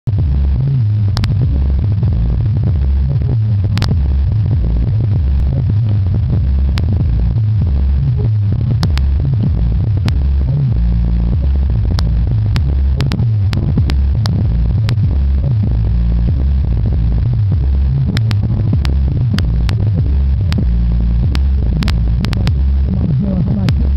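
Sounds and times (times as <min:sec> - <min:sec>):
deep hip-hop bass line: 0:00.0 - 0:23.9
sharp clicks: 0:01.1 - 0:01.4, 0:03.7 - 0:04.1, 0:08.7 - 0:10.2, 0:11.9 - 0:15.1, 0:18.0 - 0:22.6.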